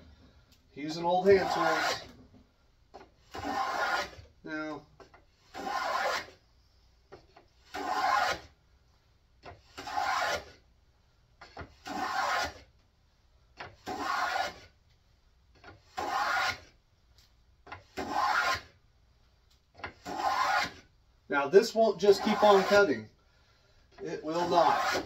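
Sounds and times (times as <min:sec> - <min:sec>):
plane shaving wood: 0:03.3 - 0:04.2, 0:05.5 - 0:06.4, 0:07.6 - 0:08.4, 0:09.6 - 0:10.6, 0:11.4 - 0:12.6, 0:13.8 - 0:14.7, 0:15.8 - 0:16.7, 0:17.8 - 0:18.7, 0:19.8 - 0:20.8, 0:22.0 - 0:22.9, 0:23.9 - 0:25.0.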